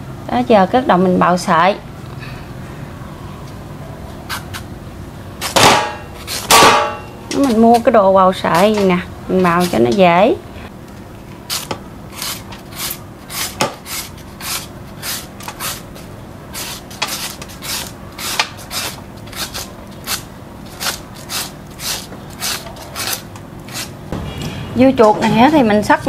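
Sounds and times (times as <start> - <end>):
mango rasping on shredder: 11.5 - 24.1.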